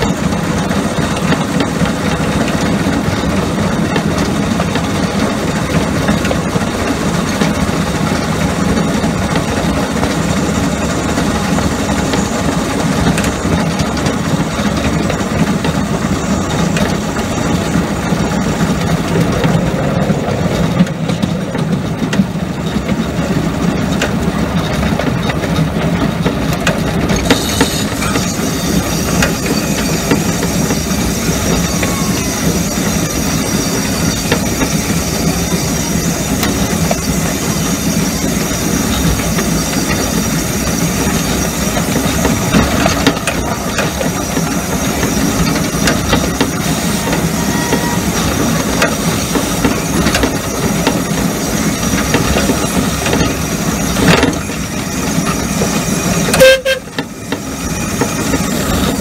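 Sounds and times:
miniature steam locomotive running: 0.0 - 59.0
brief loud tone: 47.3 - 48.3, 56.3 - 57.0.

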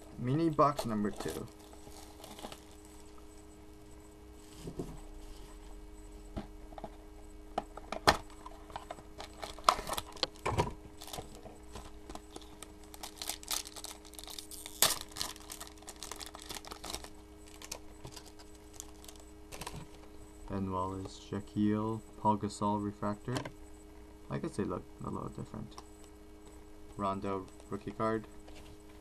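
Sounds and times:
plastic wrapper crinkling and tearing: 0.5 - 2.9, 9.2 - 10.4, 11.0 - 11.4, 12.1 - 19.9.

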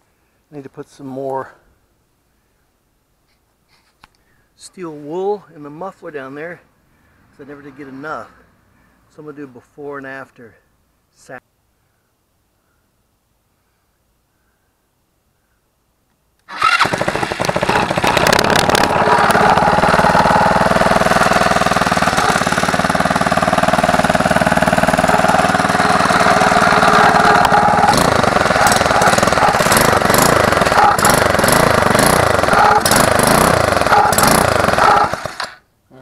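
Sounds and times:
go-kart engine running loud: 16.5 - 35.6.

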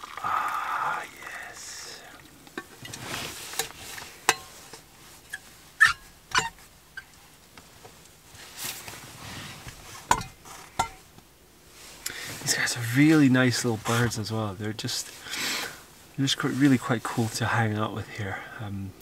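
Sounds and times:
metal thermos flask clicks and knocks: 10.1 - 11.0.

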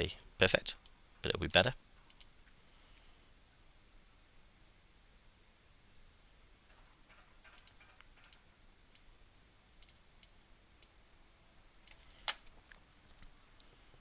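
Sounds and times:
computer mouse and keyboard clicks: 7.1 - 9.1.

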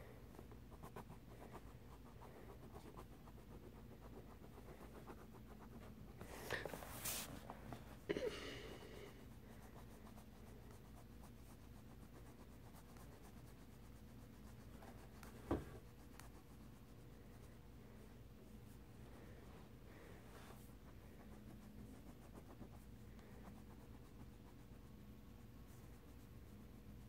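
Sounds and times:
pencil scribbling on paper: 0.3 - 7.5, 8.8 - 17.4
knock: 15.5 - 15.7.

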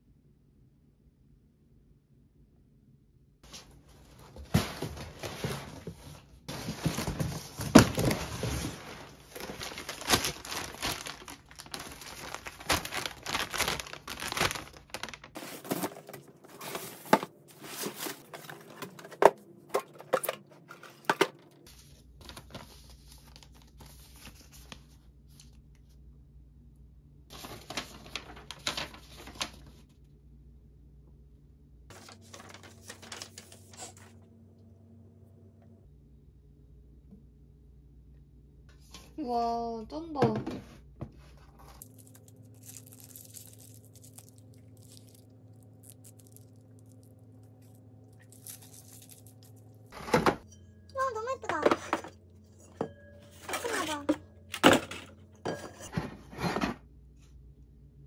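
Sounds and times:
cardboard and paper crinkling: 3.5 - 25.6, 27.3 - 29.8, 31.9 - 34.2, 41.2 - 50.4, 53.3 - 54.9
packing tape tearing: 9.3 - 17.1, 41.8 - 47.0.

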